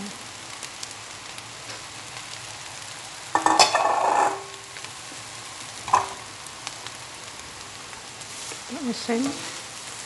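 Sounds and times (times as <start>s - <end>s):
hot oil sizzling in a wok: 0.0s - 10.0s
metal bowl clattering against wok: 3.4s - 4.5s.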